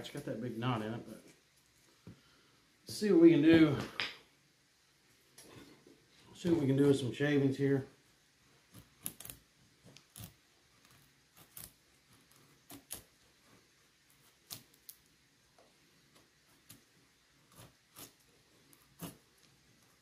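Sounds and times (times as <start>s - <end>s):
knife scraping a dry stick: 16.5s - 19.9s.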